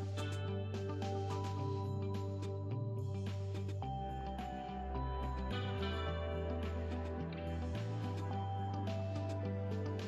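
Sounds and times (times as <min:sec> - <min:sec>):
gentle instrumental music: 0:00.0 - 0:10.0.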